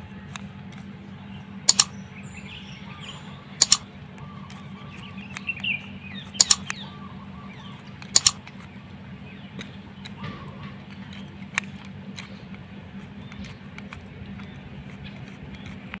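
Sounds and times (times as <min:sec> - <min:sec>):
small birds chirping: 0:00.0 - 0:16.0
steady low hum: 0:00.0 - 0:16.0
sharp double clicks: 0:01.6 - 0:02.0, 0:03.6 - 0:03.9, 0:06.4 - 0:06.9, 0:08.0 - 0:08.6.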